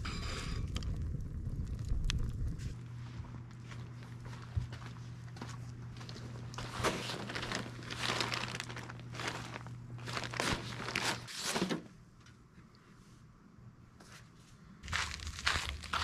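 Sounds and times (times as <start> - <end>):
low steady hum: 0.0 - 16.0
crinkling and rustling handling: 2.6 - 12.7, 14.0 - 16.0.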